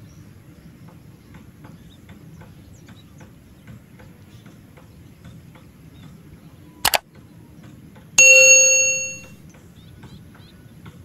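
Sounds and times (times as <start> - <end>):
bright bell ding: 8.2 - 9.3.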